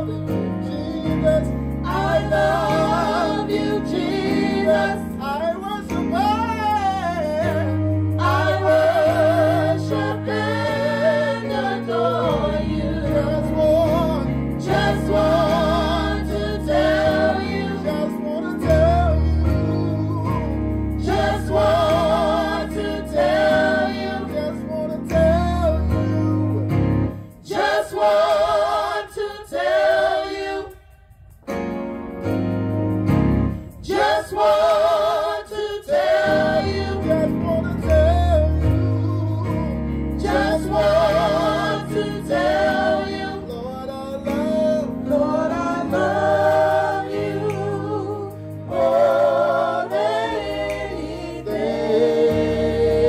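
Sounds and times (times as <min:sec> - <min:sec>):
lead voice singing gospel: 0:00.0 - 0:31.4, 0:33.7 - 0:53.0.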